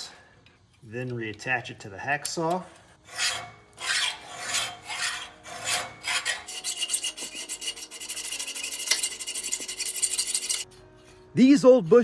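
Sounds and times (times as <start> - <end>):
hacksaw sawing through steel: 3.0 - 10.7.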